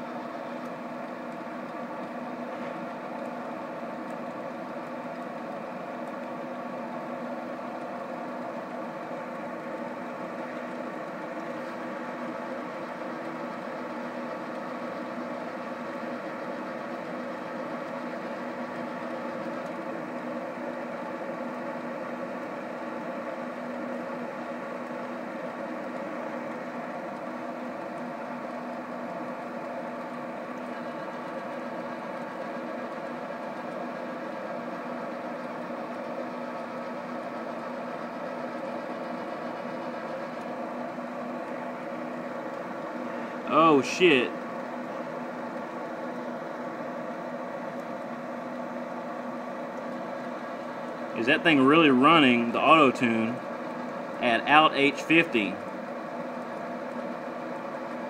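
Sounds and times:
grill blower fan humming: 0.0s - 58.0s.

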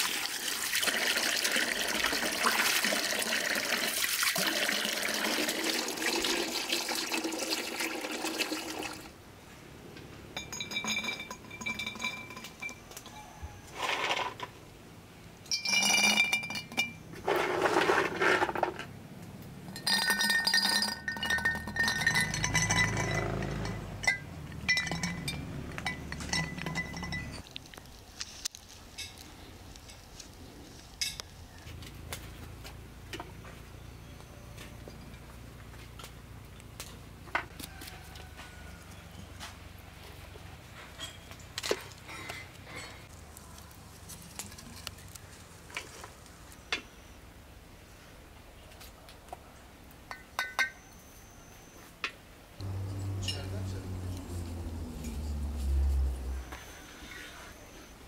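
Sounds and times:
tap water running into basin: 0.0s - 9.1s
glass bottles clinking: 10.4s - 13.2s, 15.5s - 17.0s, 19.7s - 27.5s, 50.1s - 50.8s, 52.6s - 56.2s.

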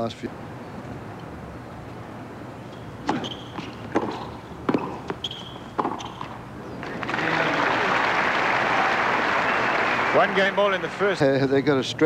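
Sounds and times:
ball bouncing: 3.0s - 6.4s
racket hitting tennis ball: 3.0s - 6.4s
shoe squeaks on court: 3.0s - 6.4s.

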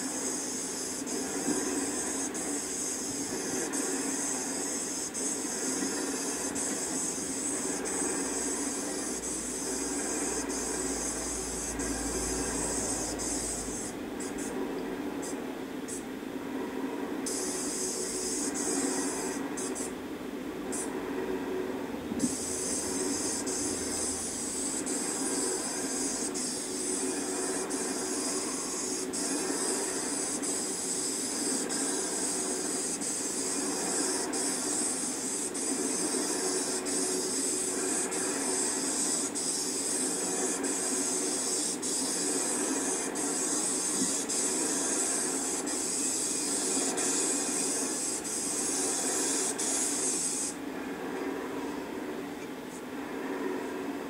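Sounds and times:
paint spray gun hissing: 0.0s - 14.5s, 17.2s - 19.9s, 22.2s - 50.6s
low hum: 5.2s - 30.3s.

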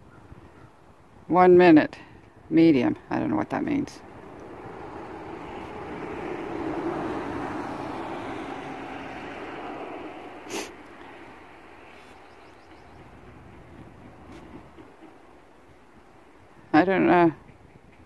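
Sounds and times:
vehicle passing: 3.4s - 15.6s.

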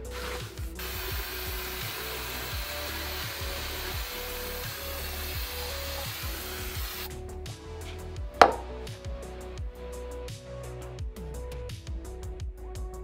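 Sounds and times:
aerosol spray hiss: 0.0s - 7.2s
background music: 0.0s - 13.0s.

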